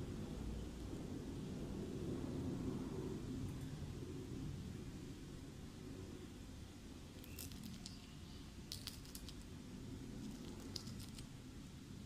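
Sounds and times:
fried potatoes crunching: 7.2 - 8.0.

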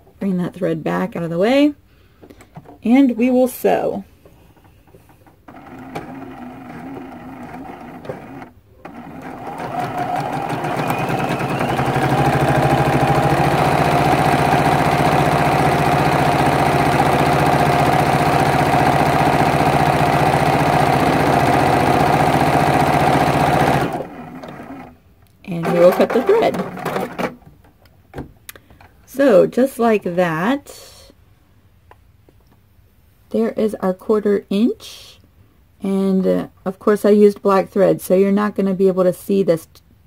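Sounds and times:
sewing machine stitching: 5.5 - 27.4.

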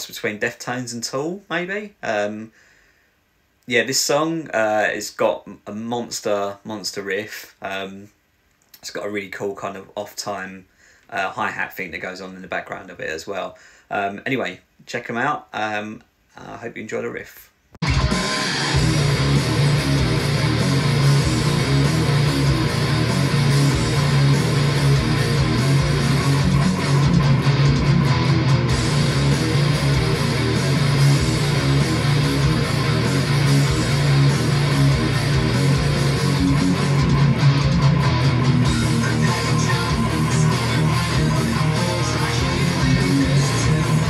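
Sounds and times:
distorted electric guitar riff: 17.8 - 44.0.

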